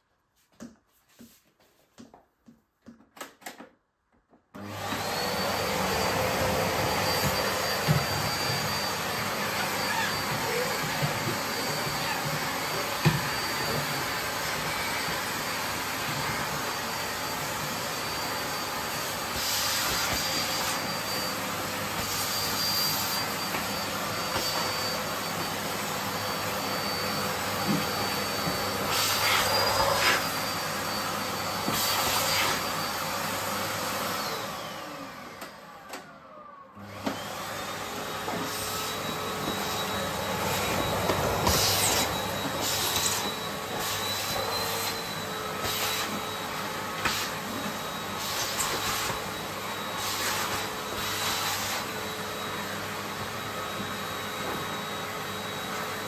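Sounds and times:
vacuum cleaner motor whine: 0:04.6 - 0:56.0.

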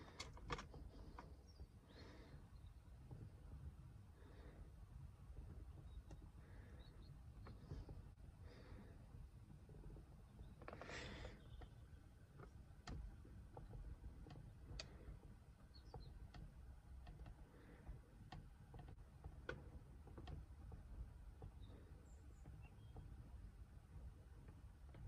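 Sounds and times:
faint ticks: 0:10.6 - 0:25.0.

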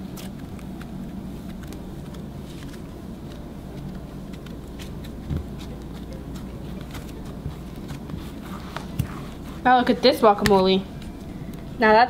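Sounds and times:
slime clicking and crackling: 0:00.0 - 0:09.4
steady low hum: 0:00.0 - 0:12.0.

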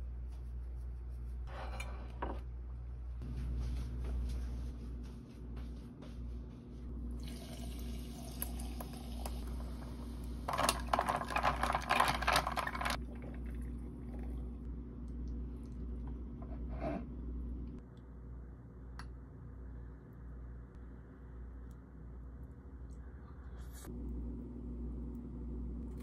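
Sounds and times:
fizzy drink bubbles crackling: 0:07.2 - 0:14.6.

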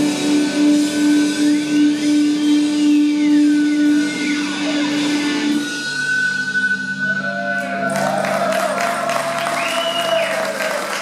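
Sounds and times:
crowd cheering and clapping: 0:07.2 - 0:11.0.

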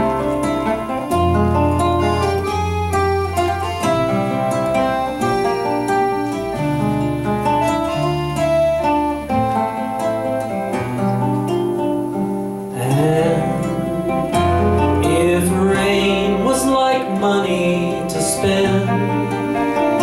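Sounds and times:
acoustic band music: 0:00.0 - 0:20.0
person singing: 0:12.7 - 0:20.0.

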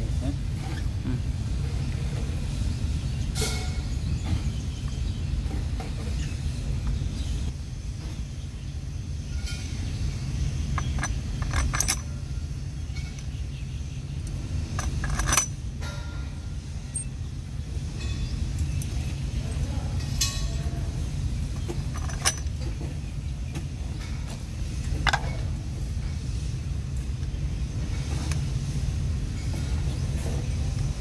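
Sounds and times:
metal clinks and knocks: 0:10.6 - 0:13.4, 0:14.6 - 0:17.2, 0:21.4 - 0:23.0, 0:24.2 - 0:25.5.

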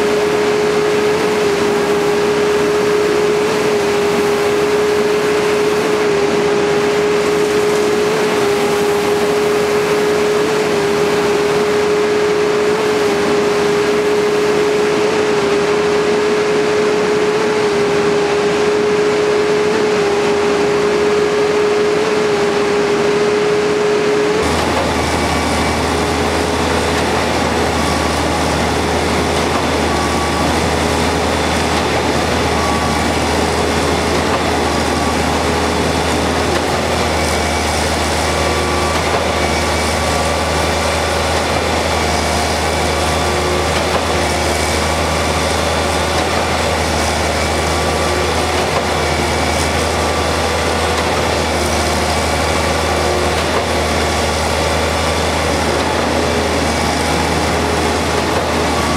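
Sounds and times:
diesel engine running: 0:00.0 - 0:58.9
pumping machinery high-pitched whine: 0:00.0 - 0:58.9.

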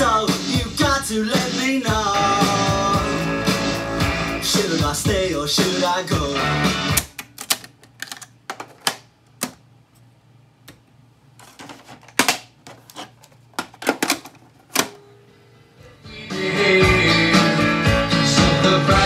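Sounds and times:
music from tape deck: 0:00.0 - 0:07.2, 0:15.9 - 0:19.0.

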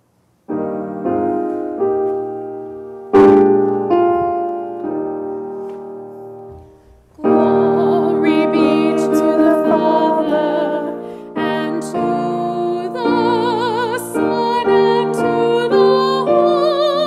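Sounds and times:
piano chords: 0:00.0 - 0:17.0
woman singing: 0:07.2 - 0:17.0.

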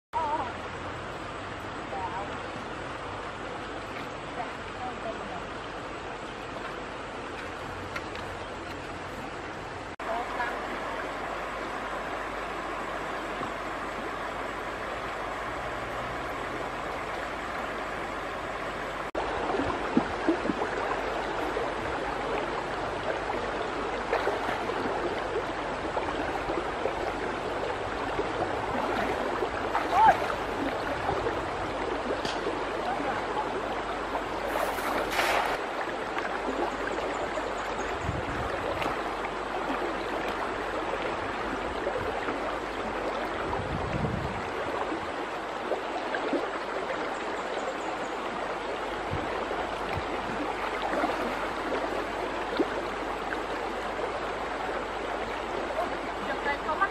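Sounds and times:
stony river flowing: 0:00.2 - 0:56.9
splashes of person wading: 0:24.1 - 0:25.3, 0:28.6 - 0:31.3, 0:34.4 - 0:35.8.

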